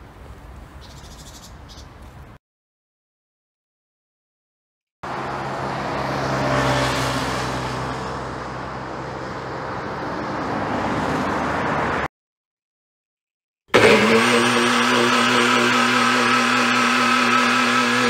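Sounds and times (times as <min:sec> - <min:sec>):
highway traffic passing: 0:05.0 - 0:12.1.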